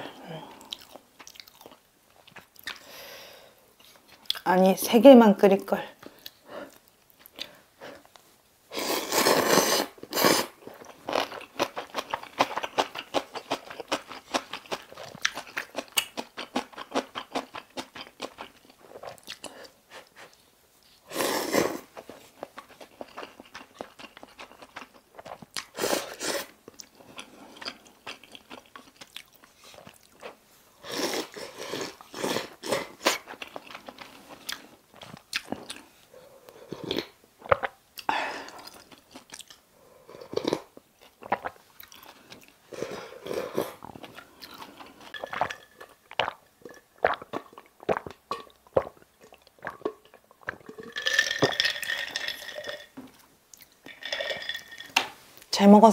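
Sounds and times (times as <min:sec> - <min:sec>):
wet chewing with mouth clicks: 0:00.6 - 0:02.9, 0:22.0 - 0:30.4, 0:31.1 - 0:35.9, 0:36.8 - 0:42.6, 0:43.2 - 0:50.9.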